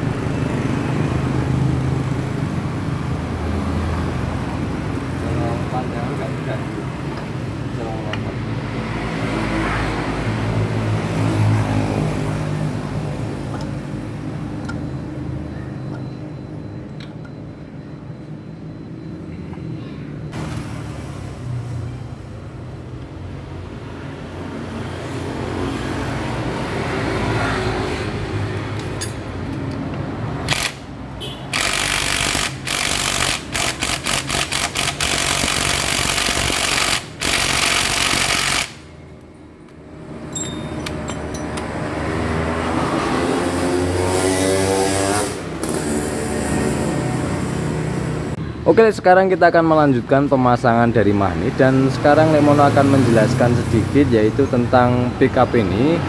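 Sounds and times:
cordless drill bursts: 0:30.5 - 0:30.8, 0:31.5 - 0:38.8
passing motorcycle engine: 0:40.4 - 0:48.4.

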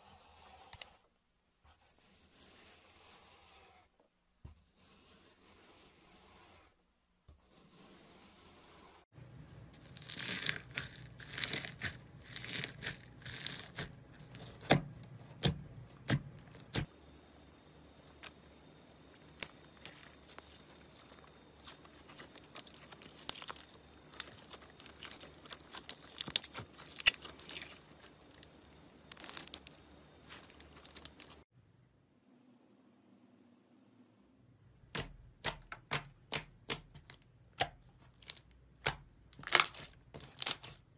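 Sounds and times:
slime crackling and popping: 0:09.8 - 0:13.9, 0:19.1 - 0:31.4, 0:38.2 - 0:40.8.

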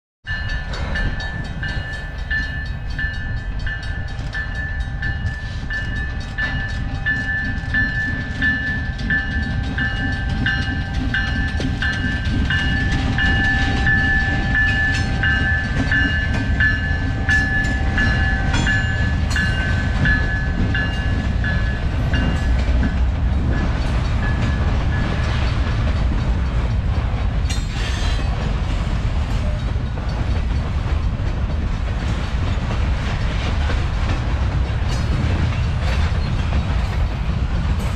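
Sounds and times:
bell ringing: 0:00.3 - 0:25.6
diesel locomotive rumbling: 0:00.3 - 0:37.9
train wheels clicking on rails: 0:00.3 - 0:37.9.

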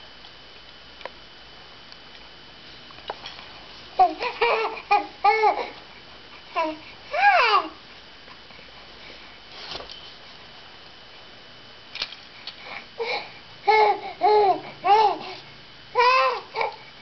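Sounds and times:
baby cooing and babbling: 0:04.0 - 0:05.8, 0:06.6 - 0:07.8, 0:13.0 - 0:15.4, 0:16.0 - 0:16.8.

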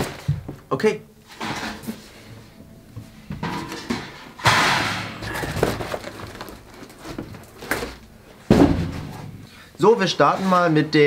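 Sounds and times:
cardboard and paper rustling: 0:05.2 - 0:09.3.

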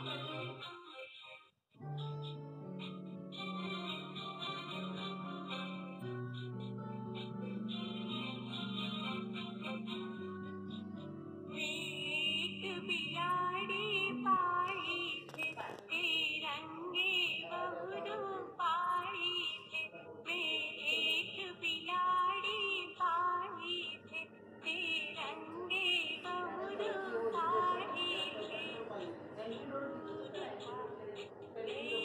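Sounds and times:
song accompaniment: 0:00.0 - 0:16.2
high-pitched singing voice: 0:02.8 - 0:32.0.

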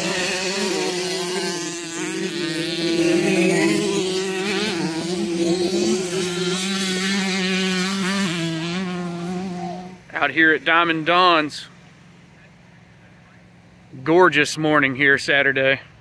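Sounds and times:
steady engine note: 0:00.0 - 0:11.7
dirt bike engines revving: 0:00.0 - 0:16.0.

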